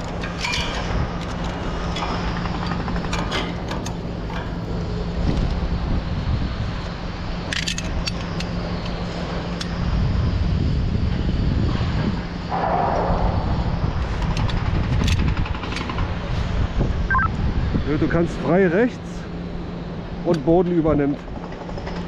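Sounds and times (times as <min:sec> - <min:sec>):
wind buffeting a microphone: 0:05.1 - 0:07.2, 0:09.8 - 0:18.4.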